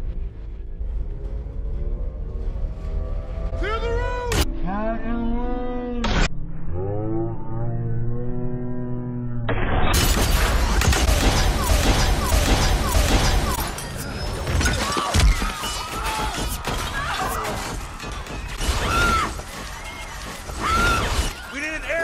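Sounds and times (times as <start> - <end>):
film music score: 0.0 - 22.0
rapid weapon fire: 9.9 - 13.8.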